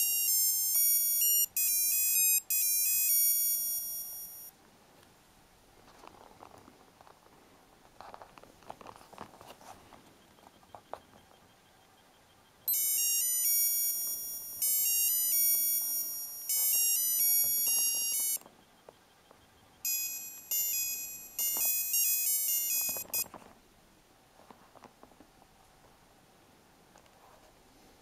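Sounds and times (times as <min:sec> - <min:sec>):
bleeping electronic watch tune: 0:00.0 - 0:04.5, 0:11.3 - 0:23.3.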